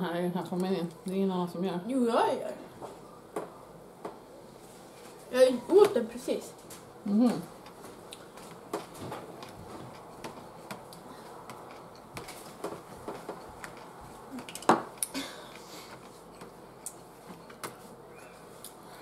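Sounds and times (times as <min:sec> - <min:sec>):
quiet chewing: 0:07.5 - 0:17.5.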